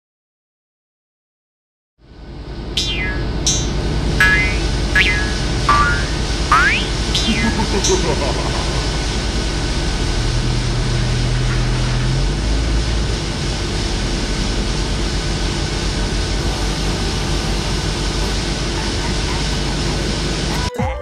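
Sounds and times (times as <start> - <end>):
loud rushing noise: 2.8 - 18.8
truck diesel engine hum: 3.9 - 20.7.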